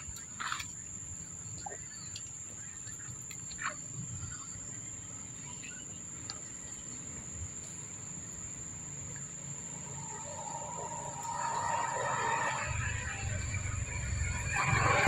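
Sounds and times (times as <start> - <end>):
insects droning: 0.0 - 15.0
loud noisy sound: 11.3 - 15.0.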